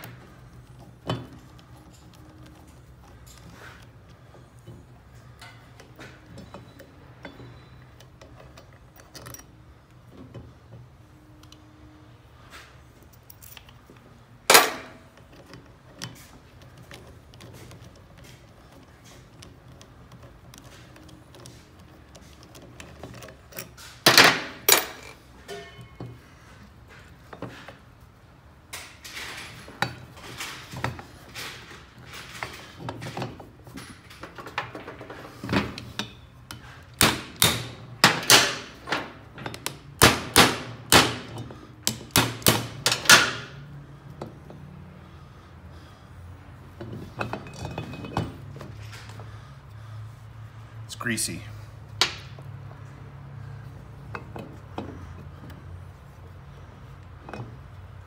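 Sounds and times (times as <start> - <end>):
metal tools knocking and clinking: 4.6 - 9.6, 14.5 - 16.2, 22.4 - 26.3, 46.8 - 49.0.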